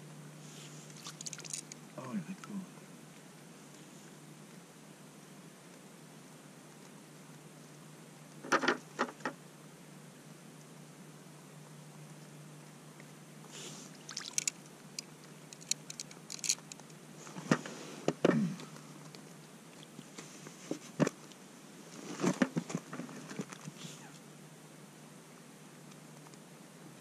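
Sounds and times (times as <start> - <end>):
fish knocking and slapping: 1.0 - 1.8.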